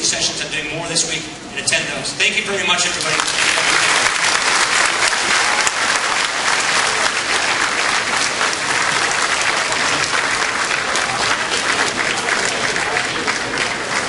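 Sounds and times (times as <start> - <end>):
audience applauding: 3.0 - 14.0.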